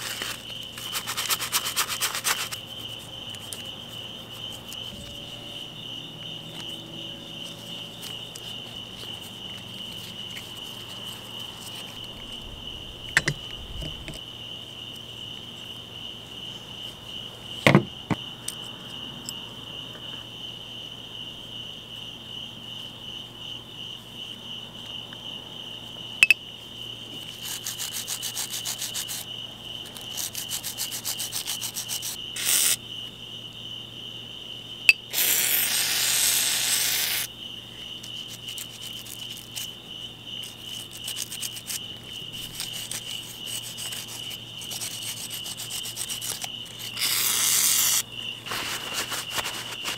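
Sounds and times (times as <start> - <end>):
brushing small parts in cleaner: 30.4 - 32.8, 42.4 - 49.9.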